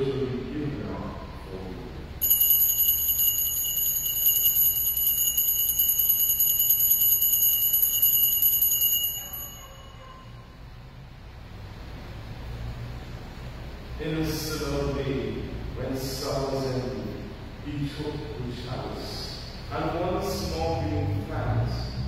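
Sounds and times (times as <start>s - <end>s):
altar bells ringing: 2.2s - 10.6s.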